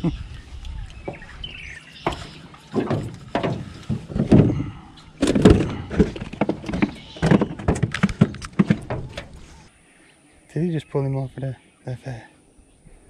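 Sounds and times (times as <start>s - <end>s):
fishing gear knocking against boat: 1.0s - 9.6s.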